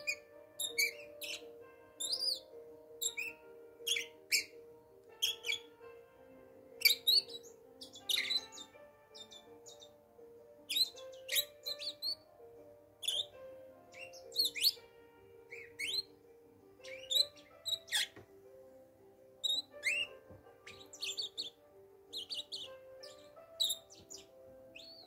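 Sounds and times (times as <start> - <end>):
parakeets chirping: 0.0 - 4.6, 5.2 - 5.8, 6.8 - 10.0, 10.6 - 12.3, 13.0 - 14.8, 15.5 - 16.2, 16.8 - 18.2, 19.4 - 25.0
soft background music: 0.0 - 25.0.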